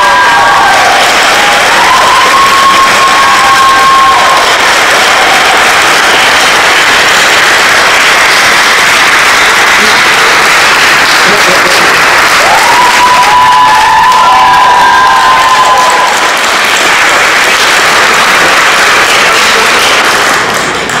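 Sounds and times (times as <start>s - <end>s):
congregation applauding: 0.0s - 21.0s
high held whistle or cheer: 1.6s - 4.4s, 12.4s - 16.2s.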